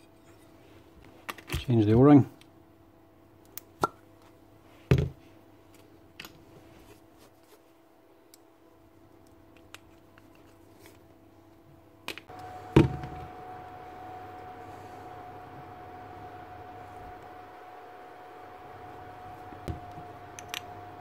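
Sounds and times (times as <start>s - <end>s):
faint steady hum: 0.0s - 21.0s
high-pitched hum with hiss: 12.3s - 21.0s.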